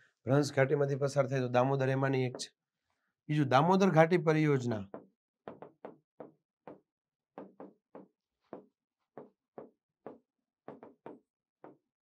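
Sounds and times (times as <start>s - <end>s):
writing taps: 4.9s - 11.9s.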